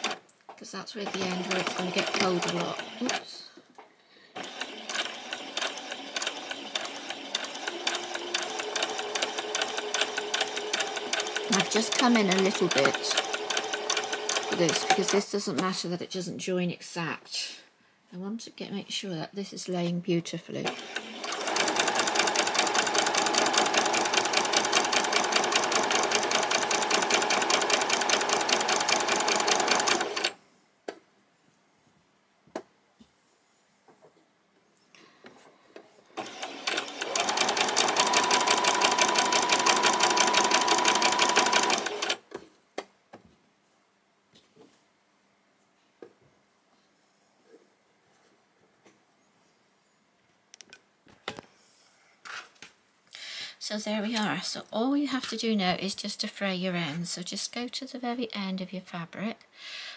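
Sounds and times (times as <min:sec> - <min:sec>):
sewing machine motor humming: 0:01.0 - 0:03.3, 0:04.4 - 0:15.2, 0:20.6 - 0:30.4, 0:36.2 - 0:42.2.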